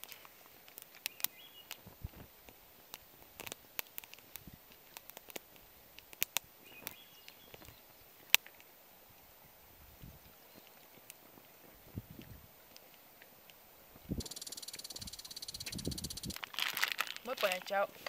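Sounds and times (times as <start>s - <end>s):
small wood fire crackling: 0.0s - 18.0s
faint high chirps: 14.0s - 16.4s.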